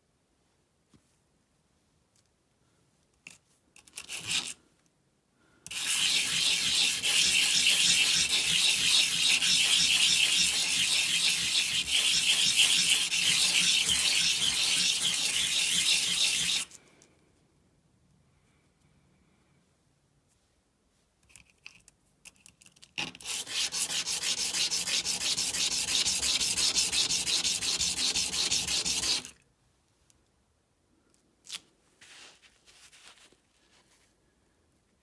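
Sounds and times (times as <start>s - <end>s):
metal casing scraping on sandpaper: 4.0s - 4.6s, 5.7s - 16.8s, 23.2s - 29.3s.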